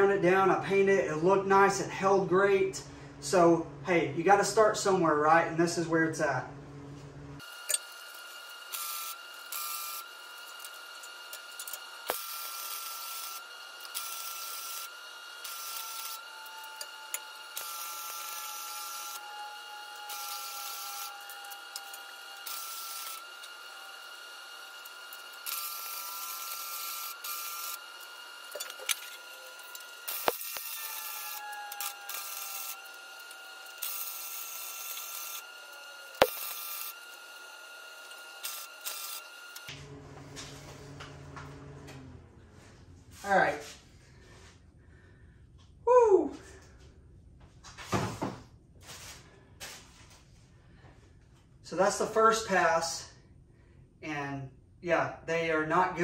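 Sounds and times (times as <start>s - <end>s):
welder arc crackling: 7.7s - 19.2s, 20.1s - 39.7s.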